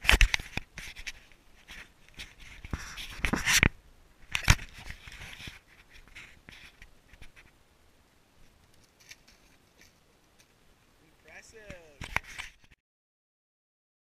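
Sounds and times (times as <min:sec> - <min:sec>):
faint rustling and ticks: 0:00.1 - 0:07.6, 0:08.4 - 0:12.8.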